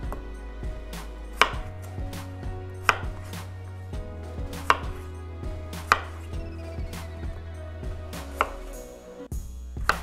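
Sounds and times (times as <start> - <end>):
knife chopping on wooden board: 0.9 - 3.5, 4.4 - 5.1, 5.7 - 6.3, 8.2 - 8.8, 9.8 - 10.0.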